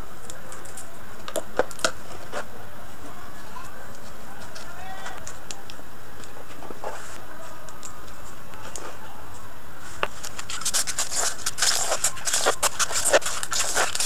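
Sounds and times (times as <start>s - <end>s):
scissors cutting polystyrene foam: 10.2s - 14.0s.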